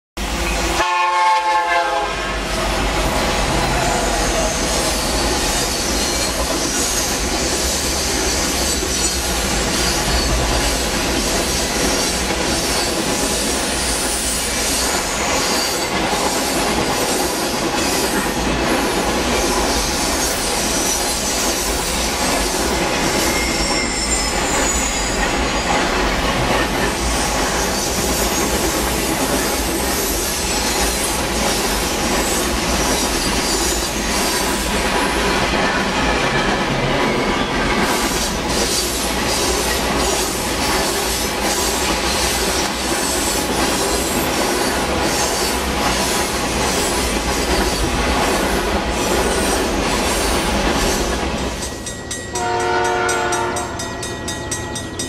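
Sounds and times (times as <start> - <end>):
train wheels rumbling and clattering: 0.2 - 55.0
train horn: 0.5 - 2.6, 52.3 - 53.9
wheels squealing: 2.5 - 16.5, 18.8 - 31.6.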